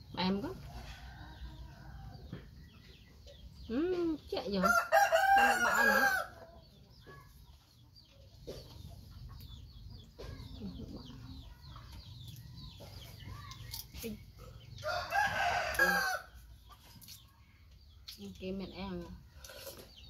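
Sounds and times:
rooster crowing: 4.6 - 6.4, 14.8 - 16.3.

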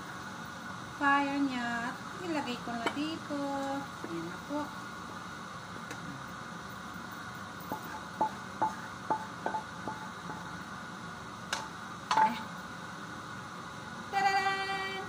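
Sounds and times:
spatula tapping metal pan: 7.7 - 10.5.

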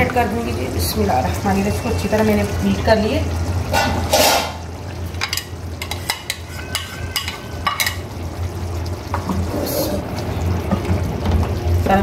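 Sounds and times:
curry bubbling and sizzling: 0.0 - 12.0.

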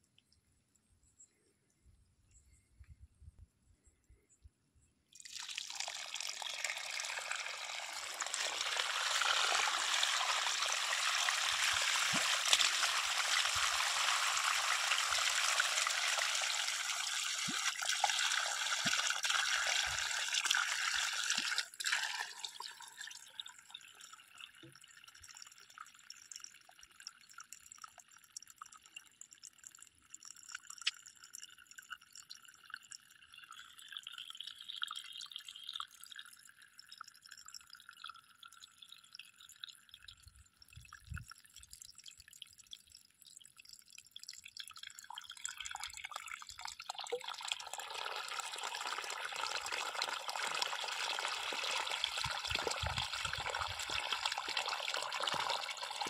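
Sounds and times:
water gushing from pipe: 5.2 - 23.9, 45.2 - 56.0
water dripping and trickling: 5.2 - 56.0.

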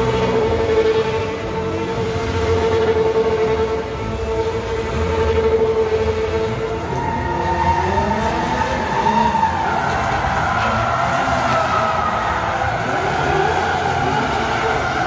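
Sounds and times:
engines at high revs: 0.0 - 15.0
tyres squealing: 6.7 - 15.0.

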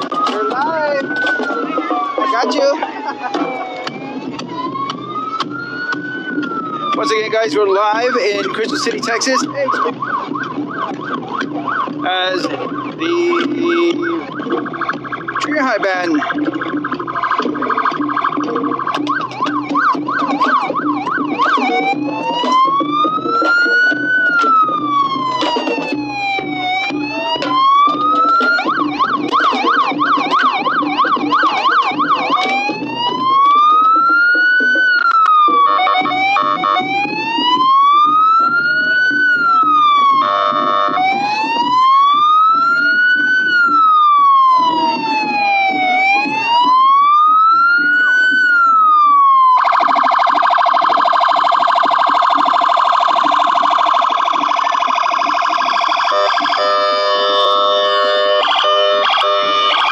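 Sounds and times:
police siren: 0.0 - 59.9
harsh horn tone: 40.2 - 41.0, 56.1 - 59.8.

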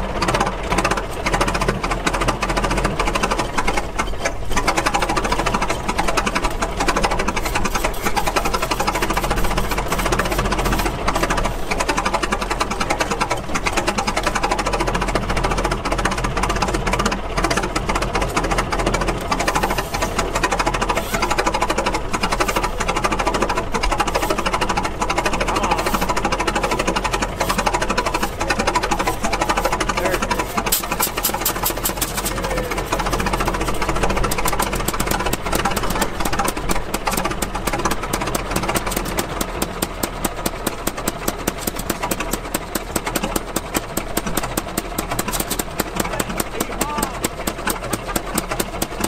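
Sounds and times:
gas engine clattering: 0.0 - 49.0.

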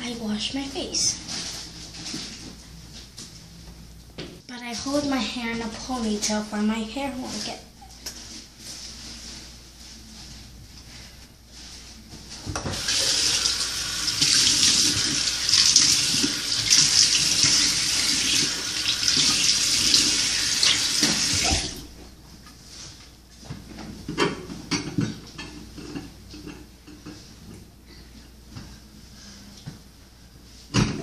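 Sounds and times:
towel rustling: 1.2 - 3.2, 8.2 - 12.4
tap water running into sink: 12.6 - 21.8
face washing under tap: 12.7 - 21.8.

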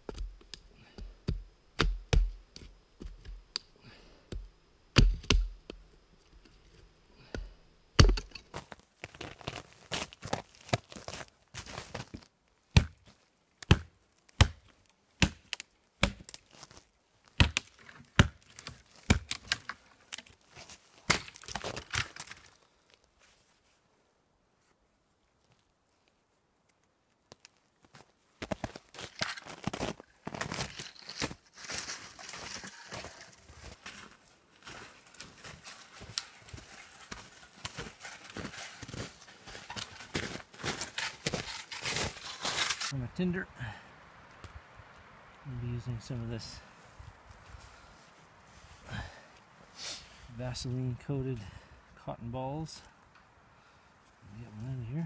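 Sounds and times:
hatchet chopping wood: 1.0 - 3.4, 4.3 - 5.8, 8.0 - 8.3, 12.7 - 13.0, 13.6 - 16.4, 17.4 - 19.6
twigs cracking and rustling: 8.1 - 23.4, 25.2 - 43.0
footsteps crunching in snow: 8.5 - 12.3, 27.8 - 43.0, 46.6 - 49.0.

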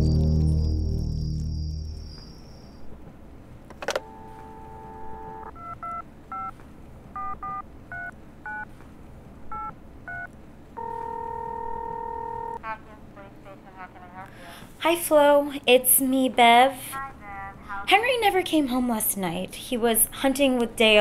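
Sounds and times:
dial tone: 4.0 - 6.5, 10.8 - 12.6
touch-tone dialing beeps: 4.0 - 6.5.

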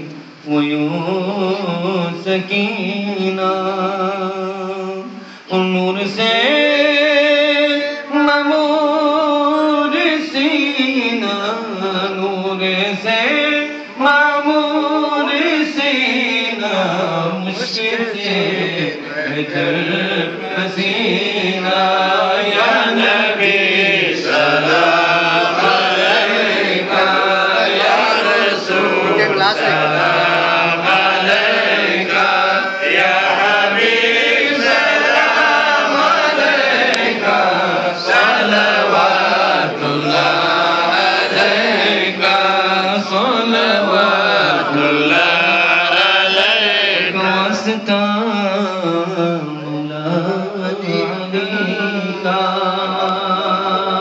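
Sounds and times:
man chanting into microphone: 0.0 - 25.9, 28.1 - 31.4, 42.0 - 54.0.

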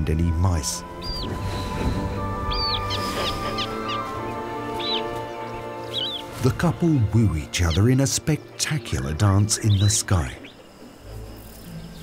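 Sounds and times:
background music with held notes: 0.0 - 12.0
bird calling: 0.8 - 6.4.

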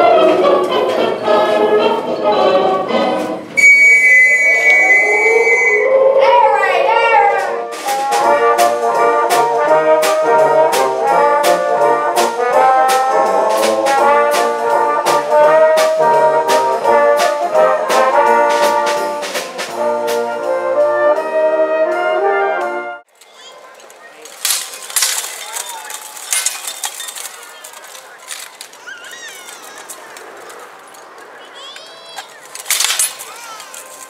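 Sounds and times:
brass band playing: 0.0 - 23.1
percussion hits: 7.3 - 20.6.

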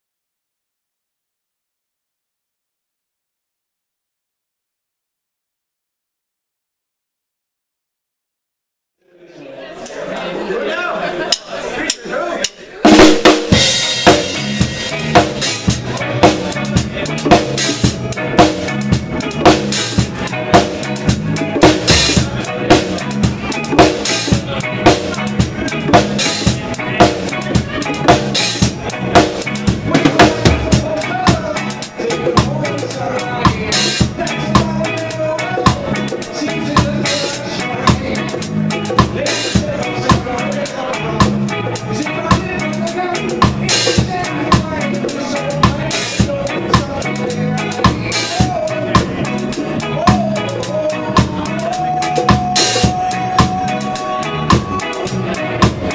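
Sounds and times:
reggae band playing live: 11.2 - 55.9
drums and cymbals in steady groove: 11.3 - 55.9.

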